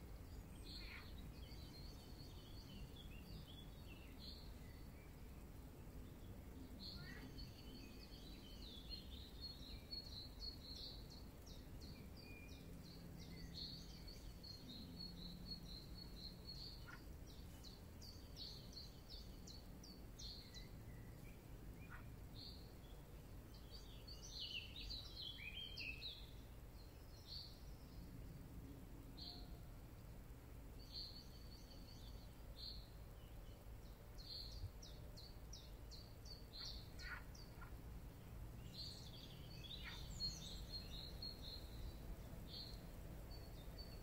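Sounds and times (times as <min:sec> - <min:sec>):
songbirds chirping: 0:00.0 - 0:44.0.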